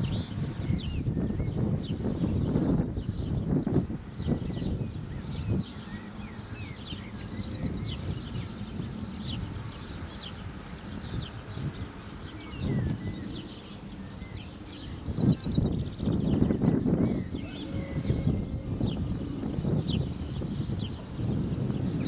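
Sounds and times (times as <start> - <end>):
songbirds chirping: 0.0 - 22.0
low rumble: 15.2 - 22.0.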